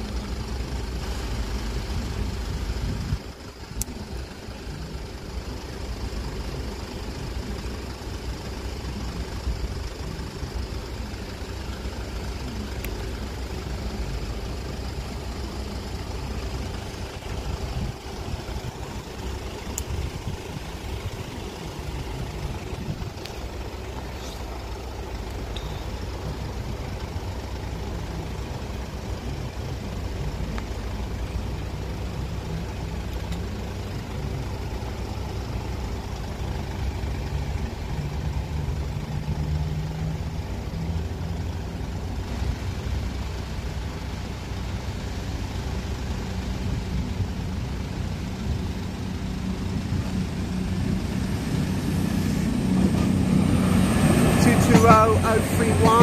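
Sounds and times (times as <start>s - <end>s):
van engine idling: 0.0s - 56.0s
approaching train: 46.4s - 56.0s.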